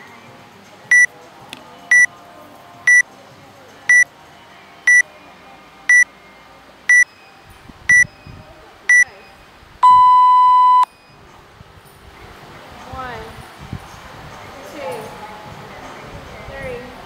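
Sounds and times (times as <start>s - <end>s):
timer beeping: 9.8s - 10.9s.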